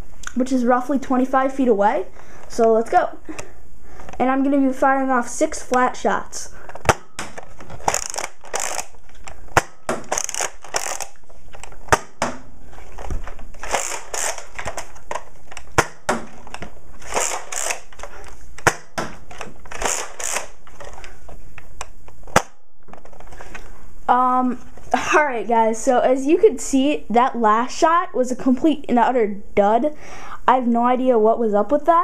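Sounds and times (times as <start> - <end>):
toy blaster shot snapping: 6.8 - 11.2, 13.6 - 14.8, 15.6 - 16.3, 17.0 - 17.9, 18.6 - 20.6, 22.3 - 22.6
blaster priming rattle: 7.8 - 11.2, 13.6 - 14.9, 17.0 - 18.0, 19.7 - 20.6.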